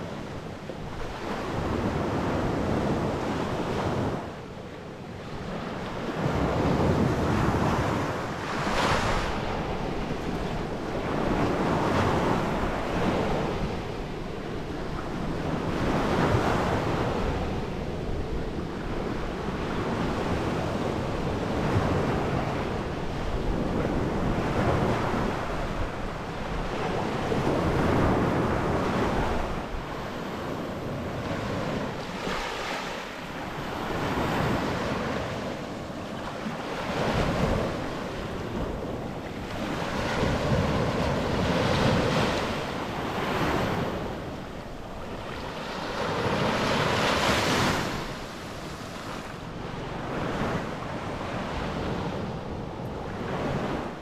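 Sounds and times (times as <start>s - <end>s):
wind buffeting microphone: 0.0s - 54.0s
ocean surf breaking: 23.6s - 52.4s.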